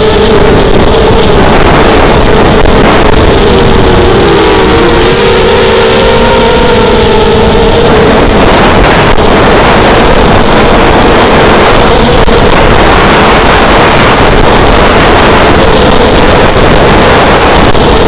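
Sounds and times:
drone motors whining: 0.0 - 18.0
wind rush: 0.0 - 18.0.

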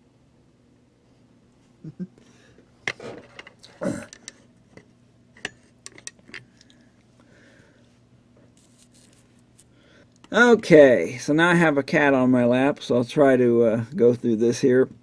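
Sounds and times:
sharp handling clicks and knocks: 2.9 - 6.7.

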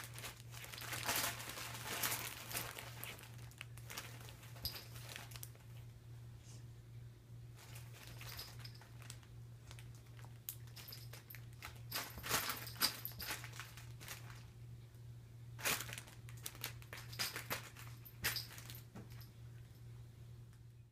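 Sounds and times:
nylon tunnel crinkling: 0.0 - 5.6, 7.6 - 14.5, 15.6 - 18.8
faint low hum: 0.0 - 20.9.

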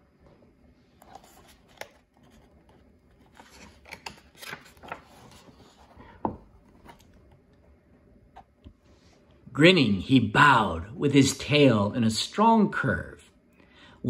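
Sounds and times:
book pages turning: 0.9 - 8.9.

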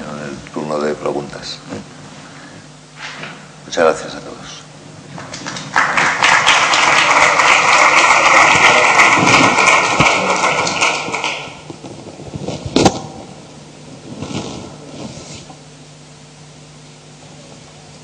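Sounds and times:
audience applauding: 5.2 - 11.7.

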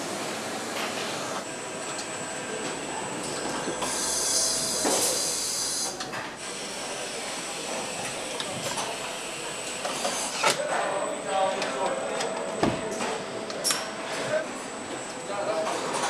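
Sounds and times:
assembly line machinery running: 1.4 - 16.0
hiss: 3.8 - 6.0.

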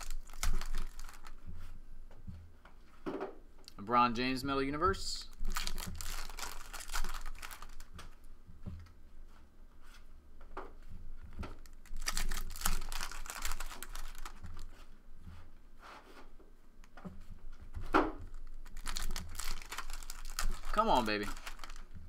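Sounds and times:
foil wrappers crinkling and tearing: 0.0 - 1.4, 5.3 - 8.0, 11.6 - 14.8, 18.3 - 22.0.

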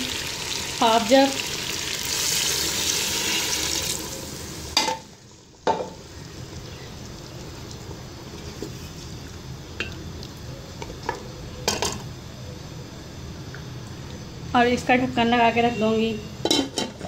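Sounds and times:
oil hissing and sizzling: 0.0 - 9.3.

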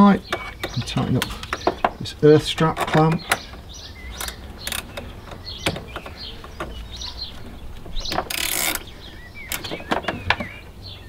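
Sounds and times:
ratchet spanner clicking: 8.3 - 8.8.

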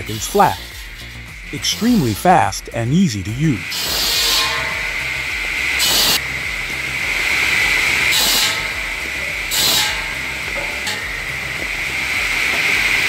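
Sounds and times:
tractor engine drone: 0.0 - 13.0
circular saw whining: 3.6 - 13.0.

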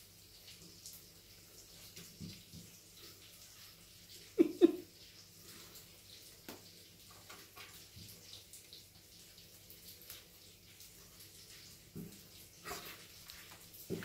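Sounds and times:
cat rubbing and rustling: 11.2 - 14.0.

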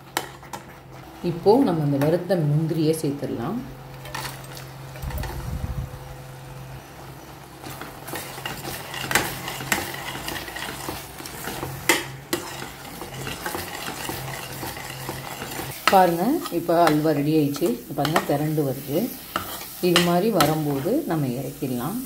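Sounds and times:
metal spatula scraping a pot: 7.6 - 18.3, 19.2 - 20.9.

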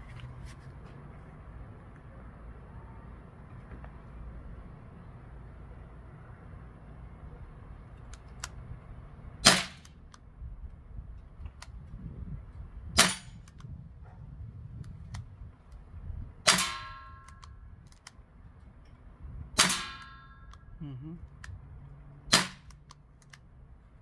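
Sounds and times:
bb pistol shots popping: 9.4 - 10.0, 13.0 - 13.6, 16.4 - 17.6, 19.6 - 20.2, 22.3 - 23.0.

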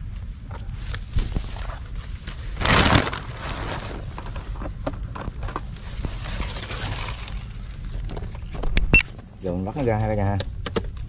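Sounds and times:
plastic bag rustling: 0.8 - 8.6.

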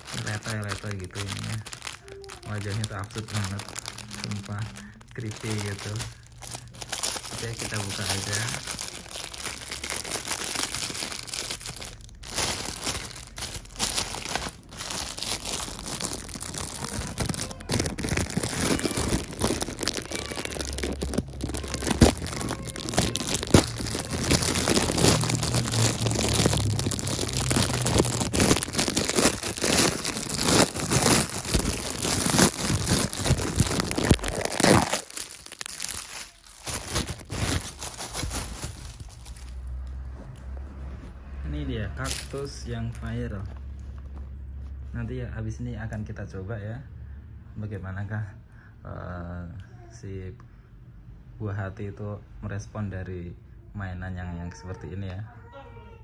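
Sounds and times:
plastic bag crinkling: 0.0 - 39.8, 42.0 - 43.5.

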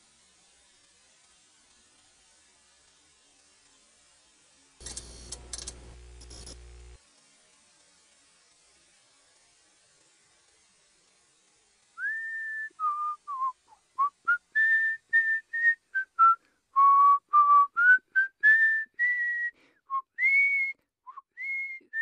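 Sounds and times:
person whistling a melody: 12.0 - 22.0.

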